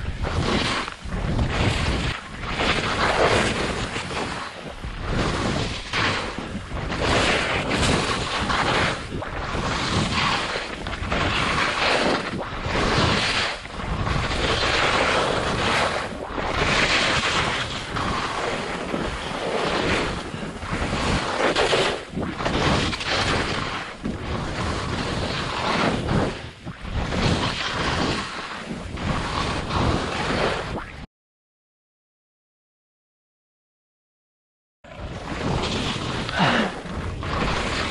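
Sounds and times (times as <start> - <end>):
wind buffeting microphone: 0.0 - 31.0, 34.9 - 37.9
skis hissing through snow: 7.0 - 26.4.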